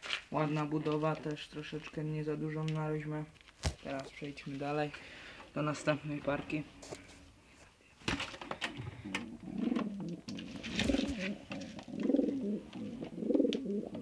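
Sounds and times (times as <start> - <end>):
rustling: 0.0 - 2.0, 2.6 - 5.4, 6.2 - 14.0
pigeons cooing: 8.7 - 14.0.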